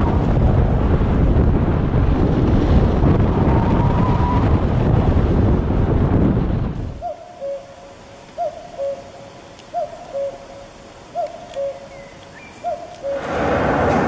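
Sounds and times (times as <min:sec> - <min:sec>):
wind buffeting microphone: 0:00.0 - 0:07.6, 0:11.3 - 0:14.0.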